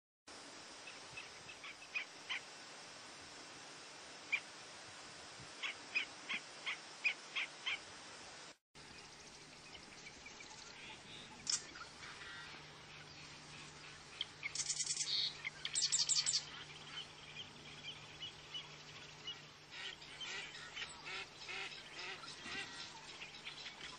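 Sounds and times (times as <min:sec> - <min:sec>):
bird calling: 0:09.6 - 0:23.9.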